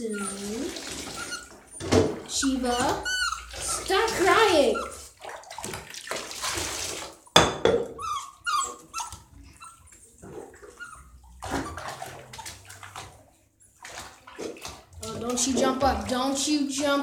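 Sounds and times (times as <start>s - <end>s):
puppy whining and yelping: 0.0s - 5.2s, 7.8s - 13.0s
water splashing: 0.0s - 7.4s, 8.6s - 17.0s.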